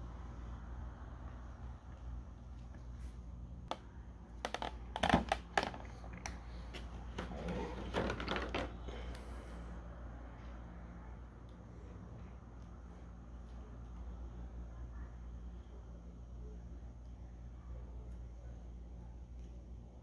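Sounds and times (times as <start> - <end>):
plastic tray clicking and crackling: 4.4 - 6.4.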